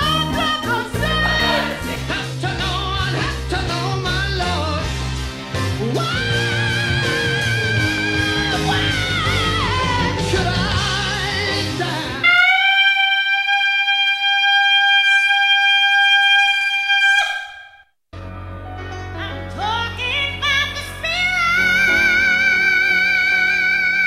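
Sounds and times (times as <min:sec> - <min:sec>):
high voice singing: 0:00.0 - 0:04.6, 0:05.8 - 0:17.8
band accompaniment: 0:00.0 - 0:12.2.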